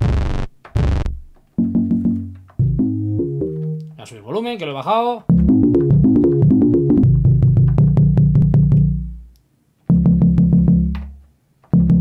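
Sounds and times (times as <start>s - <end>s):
synthesizer repeating low pattern: 0.0s - 3.8s, 5.3s - 9.2s, 9.9s - 11.0s, 11.8s - 12.0s
synthesizer bass notes: 0.0s - 3.9s, 5.3s - 9.3s, 9.9s - 11.1s, 11.8s - 12.0s.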